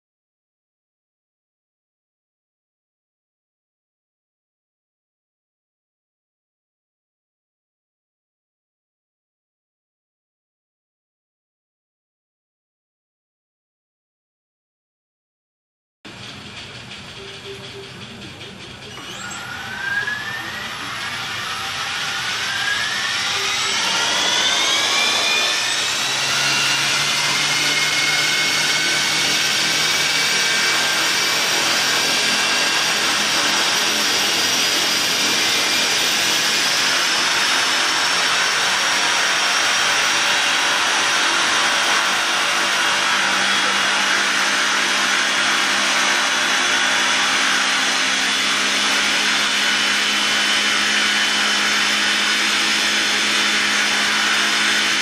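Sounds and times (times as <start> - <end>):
toy helicopter rotors whirring: 17.0 - 54.9.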